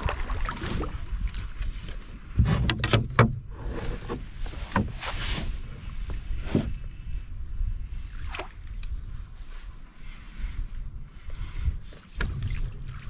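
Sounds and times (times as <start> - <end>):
paddle splashing water: 0.0 - 6.9, 11.8 - 13.0.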